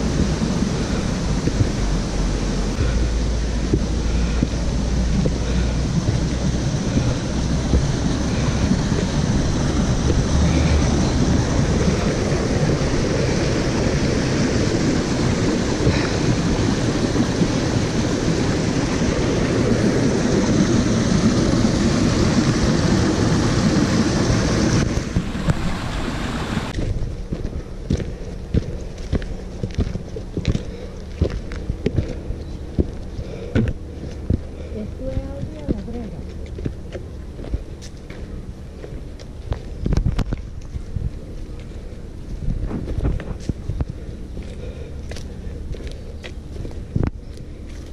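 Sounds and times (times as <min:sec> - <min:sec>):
water rushing over rocks: 0:00.0 - 0:26.9
wind rumbling on microphone: 0:00.0 - 0:47.9.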